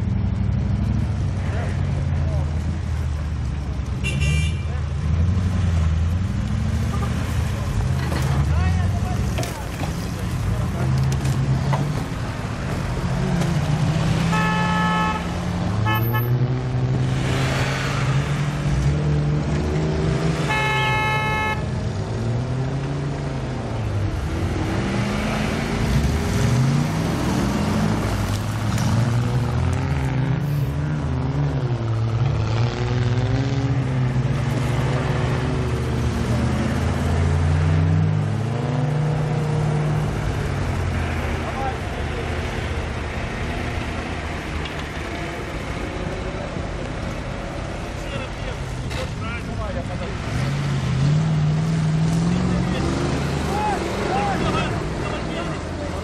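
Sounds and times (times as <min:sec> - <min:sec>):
off-road engines revving: 0:00.0 - 0:56.0
vehicle horn honking: 0:04.0 - 0:04.7, 0:14.3 - 0:16.4, 0:20.4 - 0:21.7.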